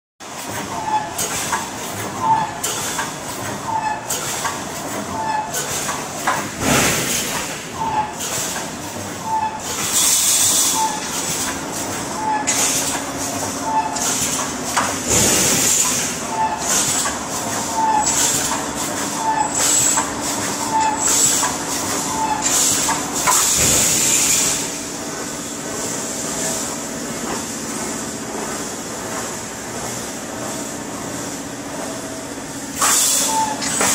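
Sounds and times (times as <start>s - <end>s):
steady machine hum: 5.9s - 33.9s
air hiss bursts: 22.5s - 24.8s, 32.8s - 33.3s.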